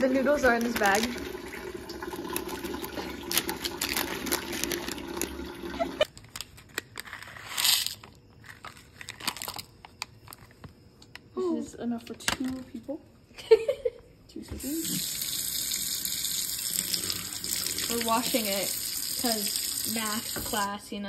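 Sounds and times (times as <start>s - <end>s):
foil pouch crinkling: 0.2s - 1.4s, 2.1s - 10.7s
dry noodles pouring into cup: 0.3s - 6.1s, 15.0s - 20.5s.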